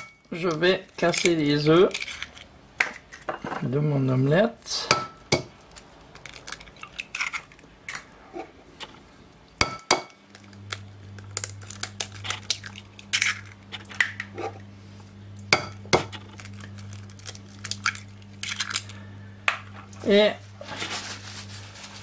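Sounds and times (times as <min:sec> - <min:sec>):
low steady hum: 0:00.0 - 0:22.0
eggshells crackling apart: 0:05.5 - 0:08.2, 0:10.2 - 0:14.3, 0:16.0 - 0:19.0.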